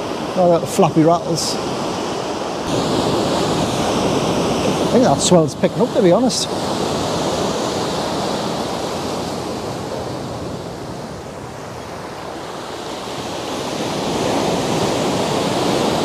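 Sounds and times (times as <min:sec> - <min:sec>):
sea surf washing against wall: 0:00.0 - 0:16.0.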